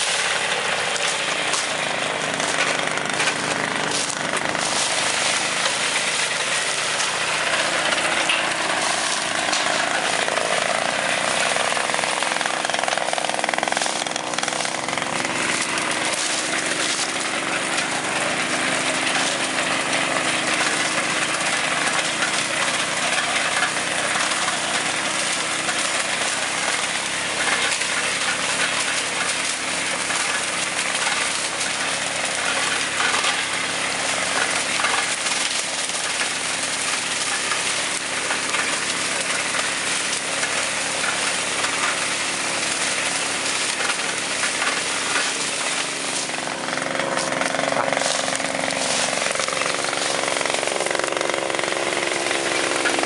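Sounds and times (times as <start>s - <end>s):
harvester and tractor engine running: 0.0s - 53.0s.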